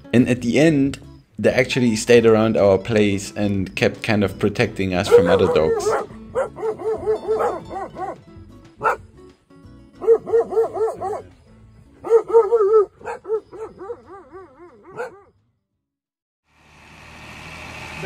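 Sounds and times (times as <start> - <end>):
dog barking: 5.0 - 8.2, 8.8 - 9.1, 10.0 - 11.4, 12.0 - 15.3.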